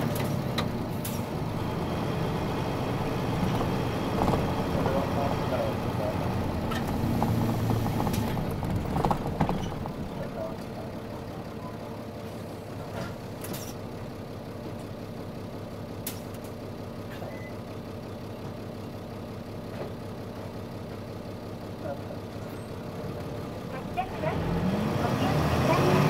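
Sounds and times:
diesel bus engine idling: 0.0s - 26.0s.

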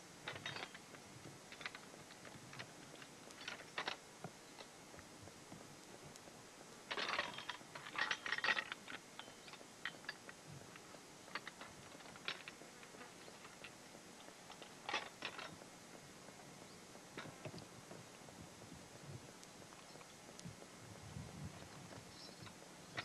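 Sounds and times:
harness chains clinking: 0.3s - 0.9s, 6.9s - 10.3s.

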